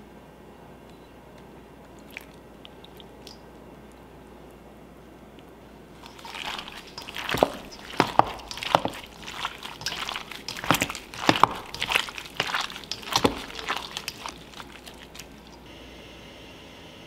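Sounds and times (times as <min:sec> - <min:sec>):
wet squelches of mixing chicken: 0:01.9 - 0:04.0, 0:05.9 - 0:15.7.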